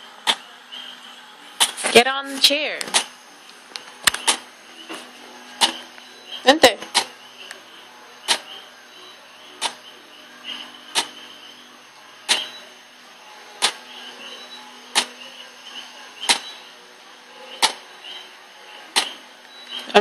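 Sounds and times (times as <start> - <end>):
baby swing mechanism clicking: 9.6 - 9.8.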